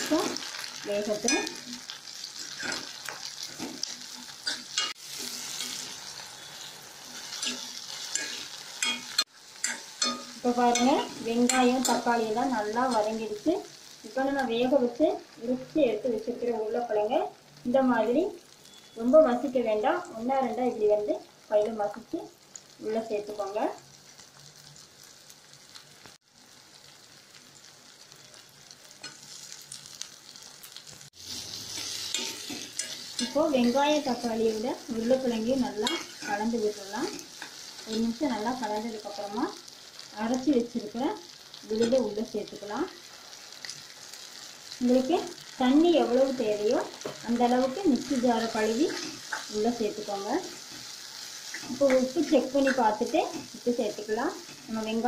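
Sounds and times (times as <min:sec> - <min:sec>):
vegetables sizzling in hot oil: 0:00.0 - 0:55.0
metal ladle scraping pan: 0:02.4 - 0:03.0, 0:03.6 - 0:12.0, 0:31.2 - 0:33.7.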